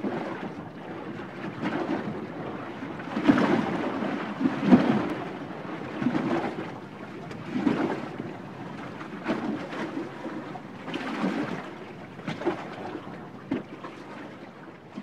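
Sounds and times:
sea water surging: 0.0s - 15.0s.

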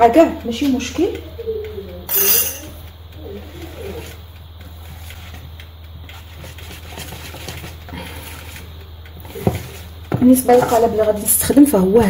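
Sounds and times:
steady low hum: 0.0s - 12.0s
faint wavering tones: 0.5s - 4.4s
whisk swishing in batter: 3.5s - 11.0s.

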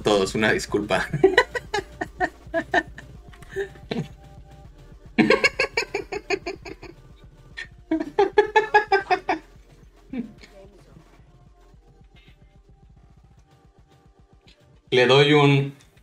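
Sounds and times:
person laughing: 1.0s - 4.2s, 5.2s - 7.0s, 7.6s - 9.4s.

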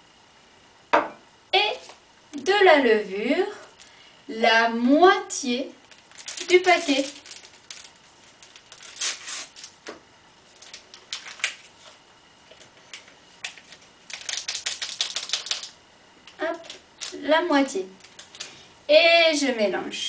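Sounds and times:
paper packet tearing and crinkling: 5.8s - 9.9s, 10.5s - 12.0s, 12.9s - 15.8s, 16.6s - 17.2s.

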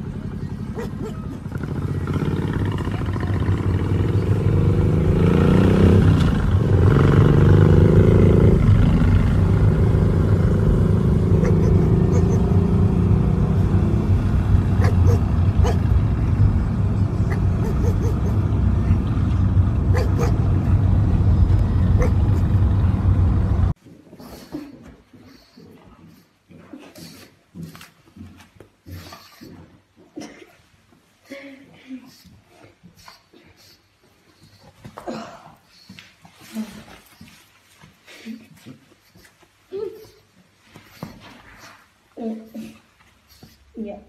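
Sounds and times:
motorcycle engine revving: 0.0s - 23.8s.

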